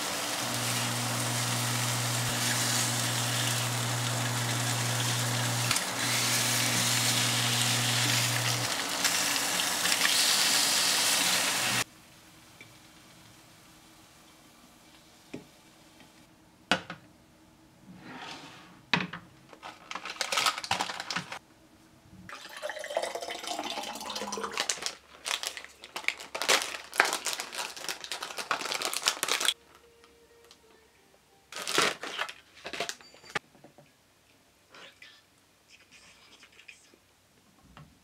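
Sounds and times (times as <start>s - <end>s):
plastic packaging crinkling and tearing: 19.5s - 21.4s, 24.4s - 29.9s, 31.5s - 33.0s
water poured into glass: 22.3s - 24.6s.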